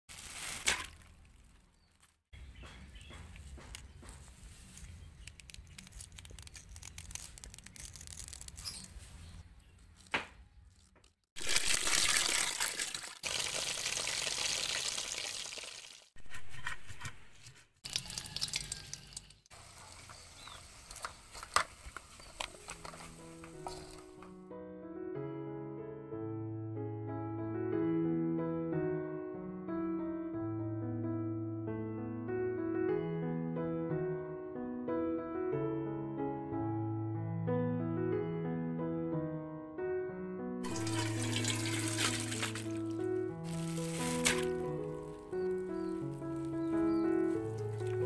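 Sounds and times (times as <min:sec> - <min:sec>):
wet handling sounds: 0:00.1 - 0:02.2, 0:04.2 - 0:16.0, 0:40.6 - 0:48.0
tap water running into basin: 0:11.4 - 0:16.0, 0:17.8 - 0:22.5, 0:40.6 - 0:45.2, 0:46.1 - 0:48.0
wooden spatula scraping wok: 0:16.2 - 0:17.7.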